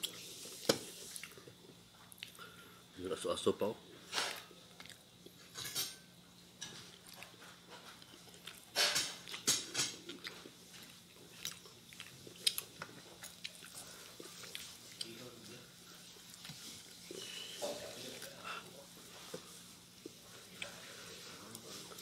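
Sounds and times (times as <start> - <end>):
chewing and mouth clicks: 0.0 - 2.4, 4.7 - 5.4, 6.9 - 15.2
faint steady hum: 0.0 - 22.0.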